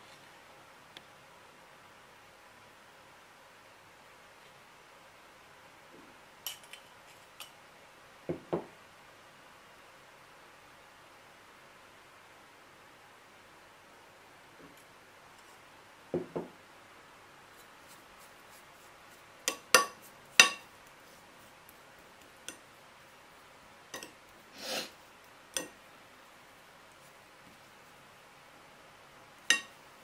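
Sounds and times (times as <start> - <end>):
metal spoon clinking on plate: 19.5 - 20.7, 24.0 - 24.2, 25.6 - 25.8, 29.5 - 29.8.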